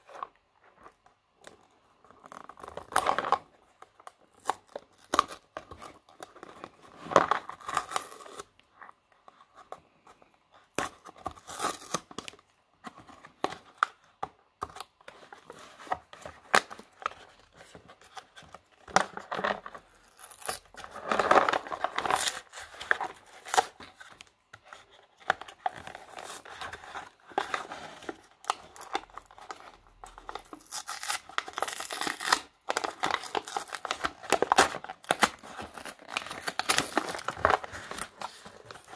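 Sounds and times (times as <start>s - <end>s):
cardboard and foil tearing: 26.0s - 38.9s.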